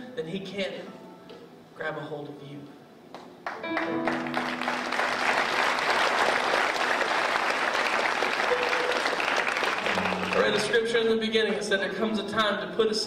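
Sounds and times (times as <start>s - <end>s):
congregation applauding: 3.4s - 10.9s.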